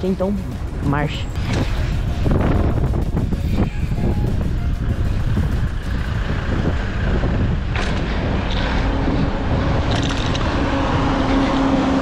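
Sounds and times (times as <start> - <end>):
cars passing: 0.0 - 12.0
tyre and road noise: 0.0 - 12.0
wind rumbling on microphone: 0.4 - 12.0.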